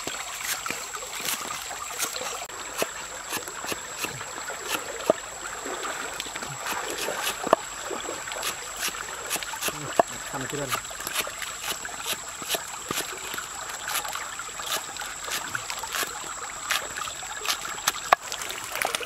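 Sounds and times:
flowing stream: 0:00.0 - 0:19.0
cleaver chopping on board: 0:02.0 - 0:05.2, 0:06.6 - 0:07.6, 0:08.4 - 0:10.1.

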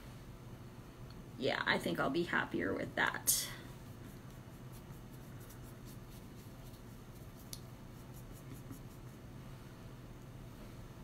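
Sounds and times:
paintbrush scratching strokes: 0:03.8 - 0:09.3.

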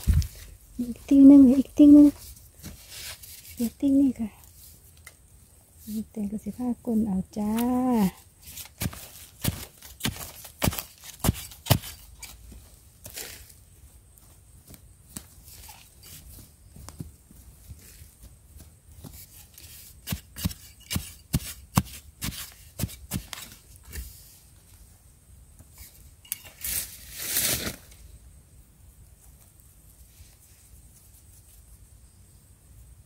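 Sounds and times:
hand digging in dry soil: 0:00.0 - 0:24.8.

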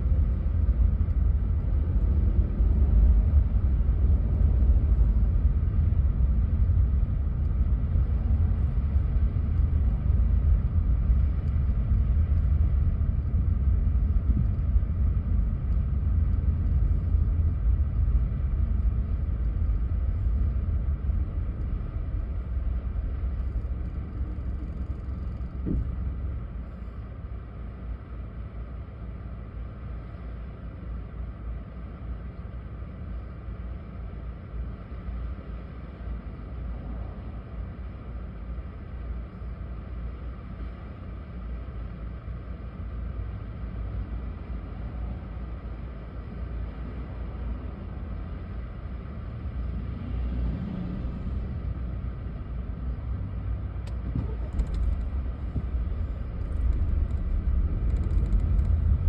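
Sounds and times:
car driving in traffic: 0:00.0 - 0:59.0.

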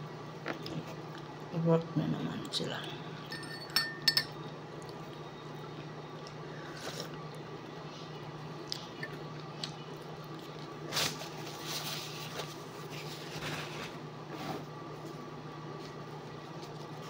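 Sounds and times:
steady low hum: 0:00.0 - 0:17.0
food rustling: 0:10.3 - 0:14.0.

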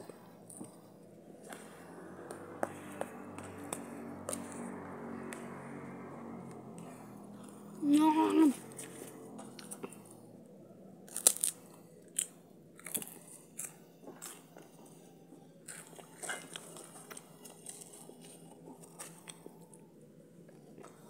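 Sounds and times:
crunchy chewing: 0:11.0 - 0:14.7, 0:15.6 - 0:19.8.

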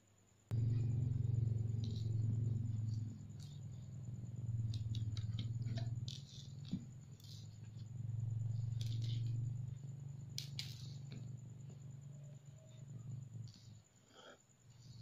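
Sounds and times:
low hum: 0:00.5 - 0:13.9.

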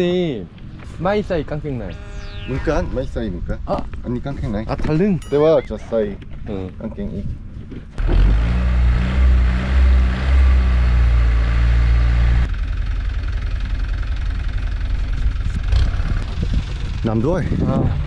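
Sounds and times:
engine idling: 0:12.4 - 0:17.0.

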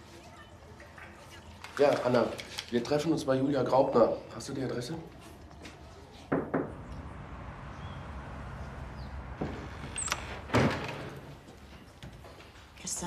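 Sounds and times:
street traffic rumble: 0:04.2 - 0:13.0
car doors shutting: 0:06.5 - 0:11.4.

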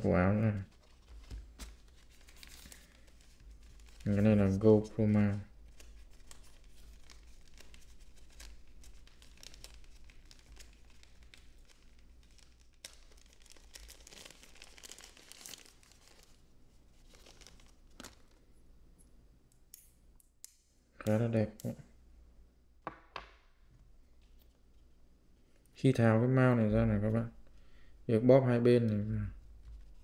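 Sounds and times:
plastic wrapper crinkling: 0:00.5 - 0:04.4, 0:05.3 - 0:18.5.

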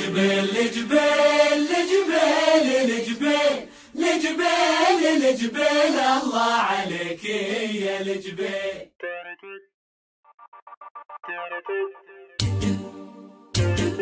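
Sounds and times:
male chorus singing: 0:00.0 - 0:08.9.

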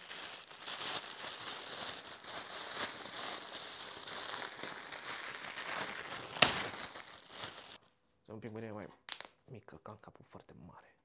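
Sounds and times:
plastic bag crinkling: 0:00.0 - 0:07.8.

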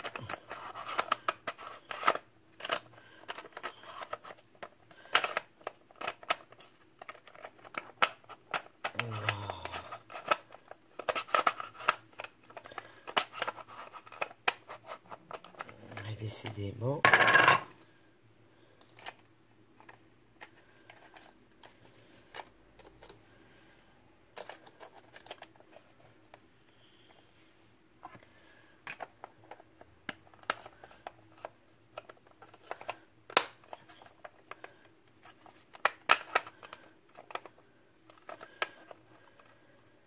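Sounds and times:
plastic parts clicking: 0:00.0 - 0:16.0, 0:24.3 - 0:25.7, 0:28.8 - 0:39.6.

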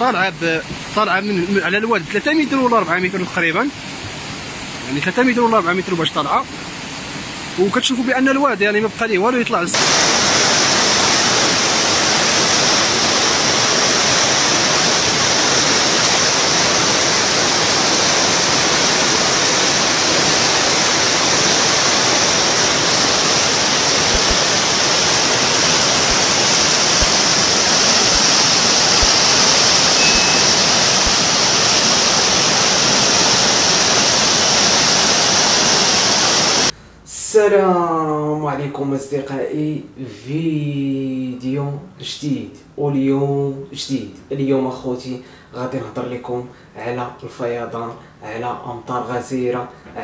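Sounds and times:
floodwater rushing: 0:09.8 - 0:36.7.

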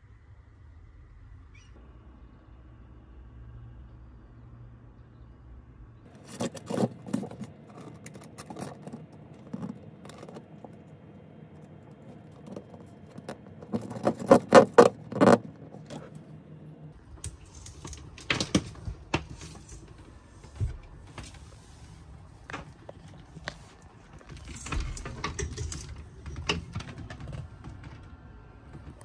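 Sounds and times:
sharp clicks and knocks: 0:06.1 - 0:10.8, 0:12.0 - 0:16.2
wiring rustling and scraping: 0:06.1 - 0:16.5, 0:17.1 - 0:29.0.

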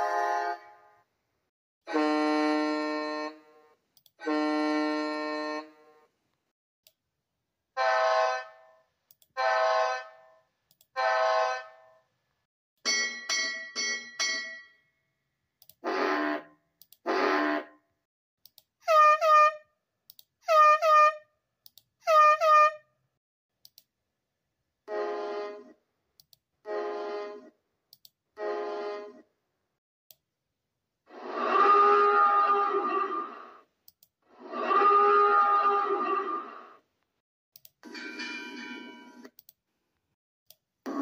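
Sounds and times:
cartoon boat horn toots: 0:00.0 - 0:00.8, 0:01.9 - 0:03.5, 0:04.2 - 0:05.8, 0:07.8 - 0:08.7, 0:11.0 - 0:11.9, 0:15.8 - 0:17.8, 0:18.8 - 0:19.7, 0:20.4 - 0:21.3, 0:22.0 - 0:22.9, 0:24.9 - 0:25.8, 0:26.6 - 0:27.5, 0:28.4 - 0:29.2, 0:31.2 - 0:33.3, 0:34.4 - 0:36.4.

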